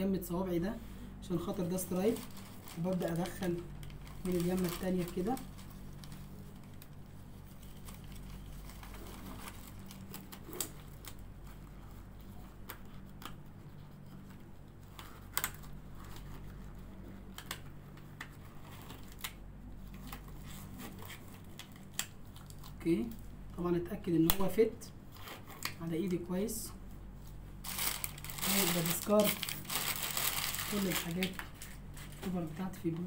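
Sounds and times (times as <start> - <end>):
steady low hum: 0.0 - 33.0
paper wrapper rustling: 1.8 - 17.5, 27.6 - 33.0
gloves snapping and rustling: 1.9 - 11.6, 12.2 - 16.5, 17.2 - 23.2, 27.6 - 32.3.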